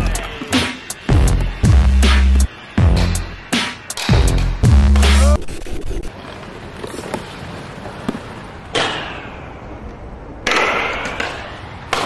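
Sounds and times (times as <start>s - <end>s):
skate wheels rolling on pavement: 5.3s - 8.8s
skates hitting a railing ledge: 10.4s - 12.0s.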